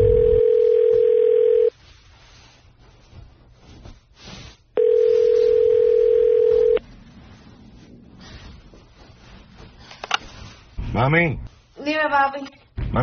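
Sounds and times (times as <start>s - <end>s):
telephone ringback tone: 0.0s - 1.7s, 4.8s - 6.8s.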